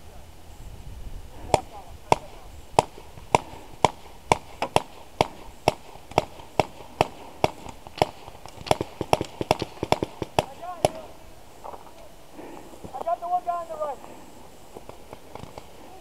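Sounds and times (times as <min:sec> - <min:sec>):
paintball marker firing: 0:01.5 - 0:11.2, 0:14.8 - 0:15.8.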